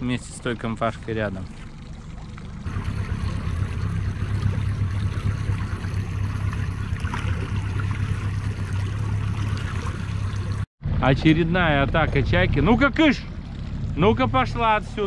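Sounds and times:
outboard motor humming: 0.0s - 10.7s, 11.6s - 15.0s
water rushing along hull: 0.0s - 10.7s, 11.6s - 15.0s.

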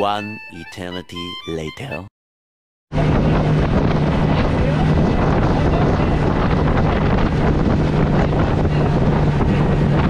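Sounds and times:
boat engine drone: 2.9s - 10.0s
water rushing past hull: 2.9s - 10.0s
wind buffeting microphone: 2.9s - 10.0s.

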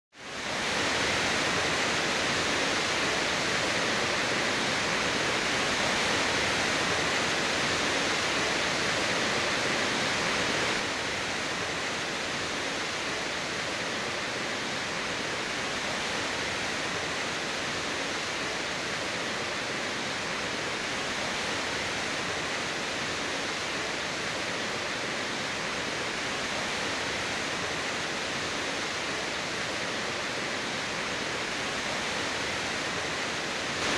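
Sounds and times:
stream rushing: 0.2s - 33.9s.

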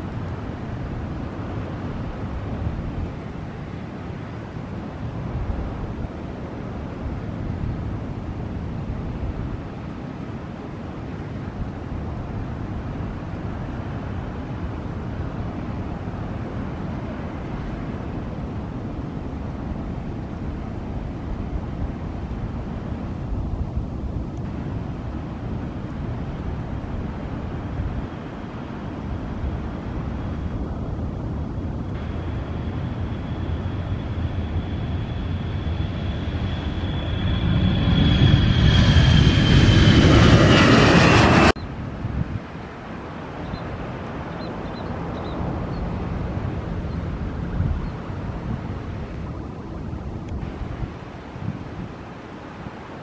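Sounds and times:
jet engines rumbling: 20.8s - 52.5s
jet airliner taking off: 31.4s - 42.6s.

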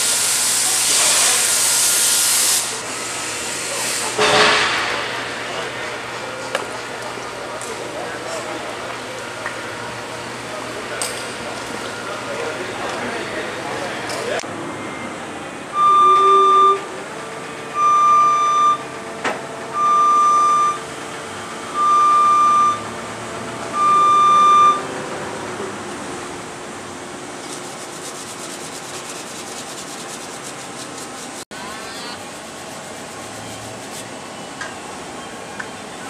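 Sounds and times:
machinery hum: 2.7s - 36.0s
alarm beeping: 15.7s - 16.9s, 17.7s - 18.9s, 19.7s - 20.9s, 21.6s - 23.0s, 23.7s - 24.9s.

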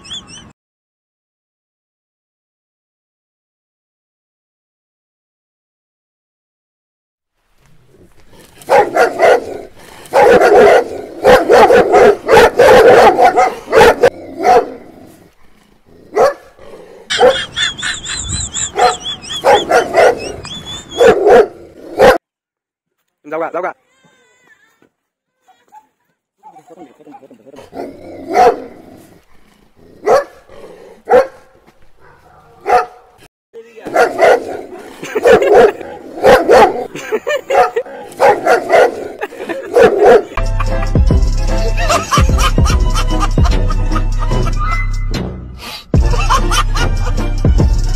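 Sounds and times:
dog barking: 8.6s - 15.0s, 16.1s - 17.5s, 18.6s - 22.2s, 27.7s - 28.8s, 30.0s - 33.2s, 33.9s - 40.4s.

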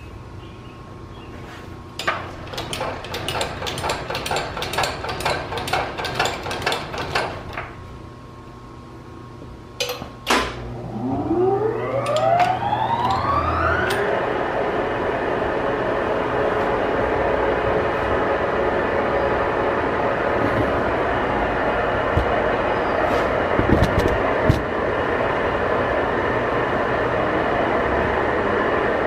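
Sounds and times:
boring mill spindle whine: 10.6s - 23.6s.

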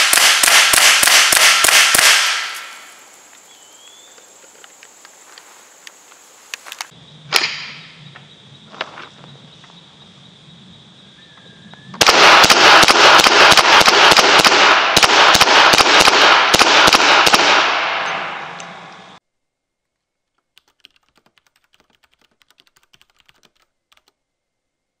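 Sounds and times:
rifle shots in rapid string: 0.0s - 2.9s, 12.0s - 18.5s.

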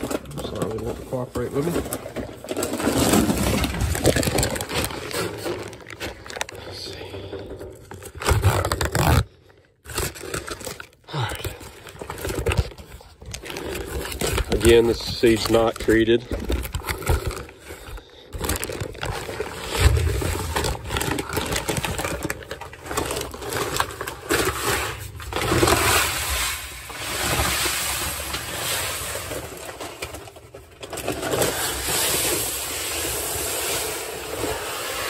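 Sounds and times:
paper bag rustling: 0.0s - 9.2s, 11.6s - 34.8s
seed pouring with rushing hiss: 31.5s - 35.0s.

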